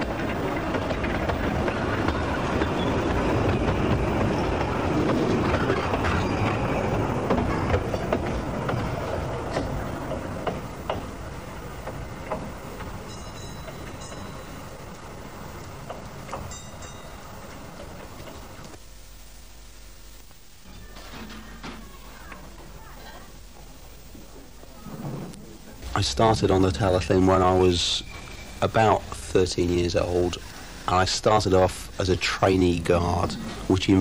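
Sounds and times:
train wheels clicking over rail joints: 0:00.0 - 0:18.8, 0:32.7 - 0:34.0.

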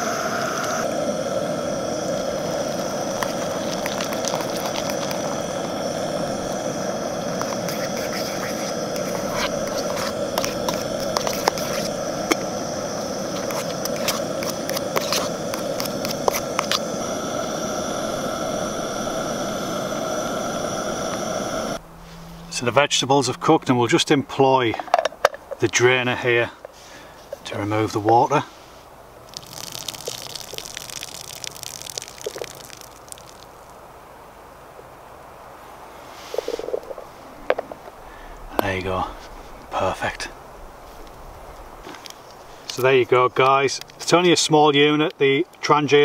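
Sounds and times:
gas stove burner hissing: 0:00.0 - 0:28.7, 0:36.0 - 0:46.0
utensil stirring in metal pot: 0:01.8 - 0:18.7.

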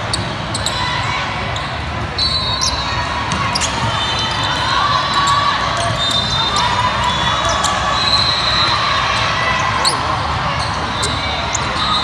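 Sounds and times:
hubbub of voices: 0:00.0 - 0:12.0
sneakers squeaking on hardwood: 0:02.2 - 0:04.4.

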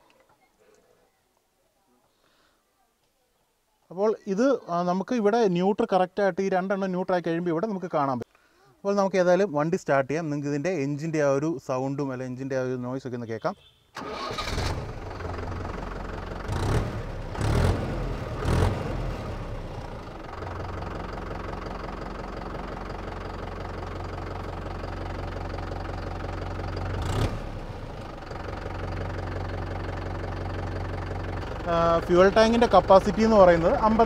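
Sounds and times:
tractor diesel engine idling: 0:14.0 - 0:34.0.

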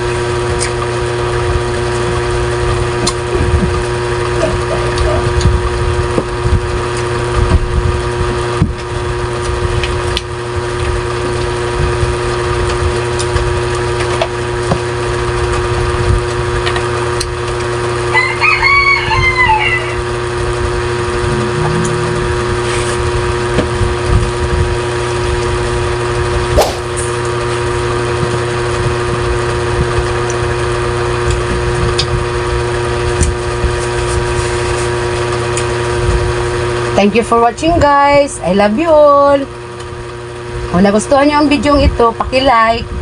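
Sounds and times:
rooster crowing: 0:18.1 - 0:20.2
steady hum with low rumble: 0:19.8 - 0:30.0.

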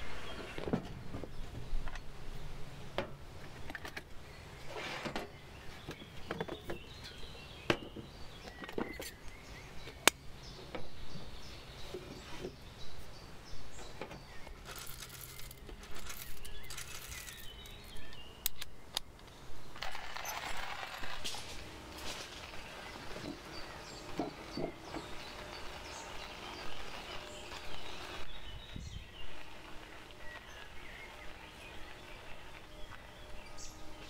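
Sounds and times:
birds chirping faintly: 0:00.0 - 0:34.0.

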